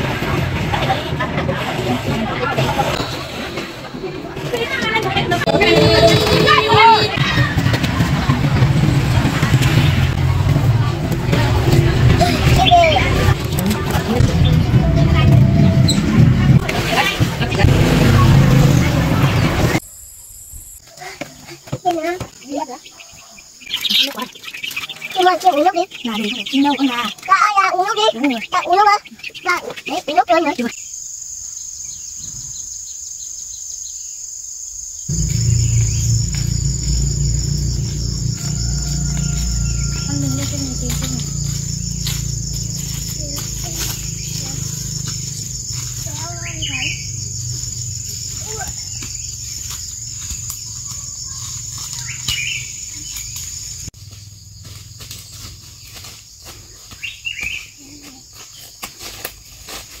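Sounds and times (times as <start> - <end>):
insects droning: 9.3 - 60.0
low rumble on microphone: 35.1 - 44.8.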